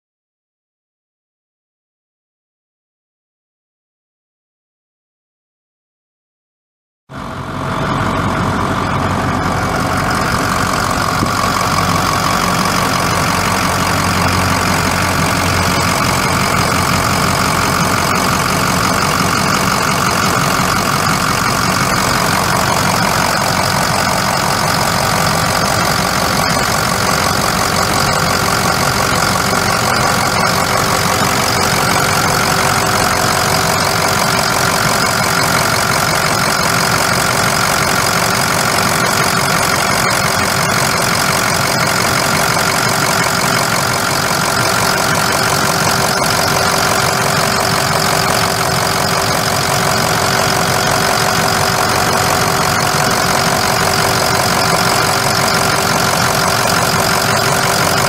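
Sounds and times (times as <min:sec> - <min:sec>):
diesel engine idling: 0:07.1 - 0:58.0.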